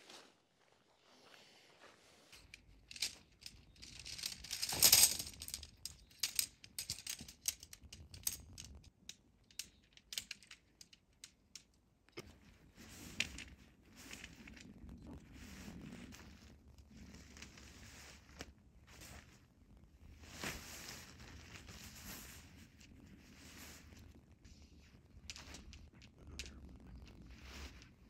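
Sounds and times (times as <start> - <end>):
tent hardware clinking: 2.3 - 12.3
nylon fabric rustling: 20.1 - 24.1.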